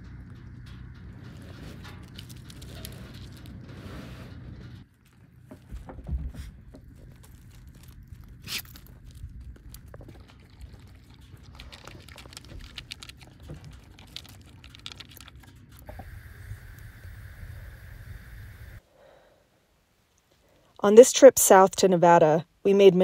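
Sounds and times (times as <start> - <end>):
low rumble: 0.0 - 18.8
steady hum and hiss: 15.8 - 20.6.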